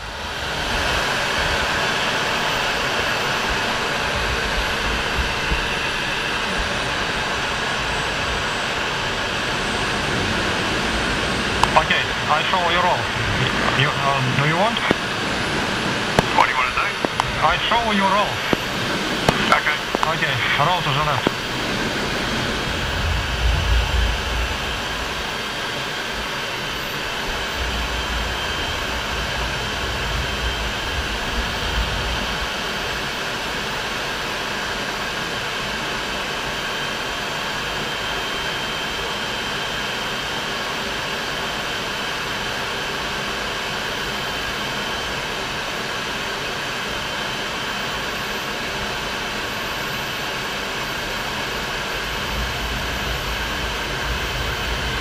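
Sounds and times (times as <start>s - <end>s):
jet engine and rushing air: 0.0s - 34.3s, 49.4s - 55.0s
high whine: 0.0s - 39.1s, 47.8s - 55.0s
wind buffeting microphone: 9.3s - 26.3s, 26.9s - 33.0s, 51.7s - 55.0s.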